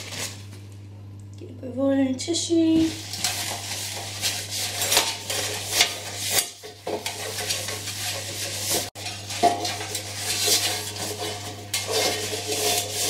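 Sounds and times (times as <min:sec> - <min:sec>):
paper wiping inside metal tin: 0:02.6 - 0:13.0.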